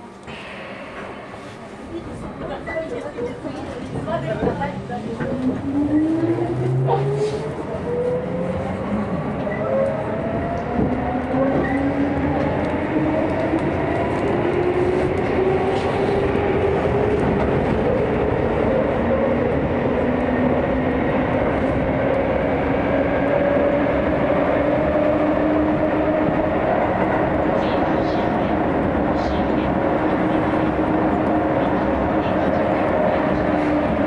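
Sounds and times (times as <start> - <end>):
wheels rumbling on rail: 0.0 - 34.0.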